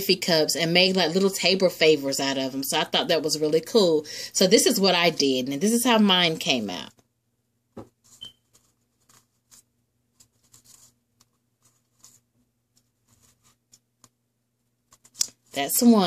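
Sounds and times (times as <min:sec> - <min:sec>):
cup tapping and rustling: 0:07.7 - 0:08.4.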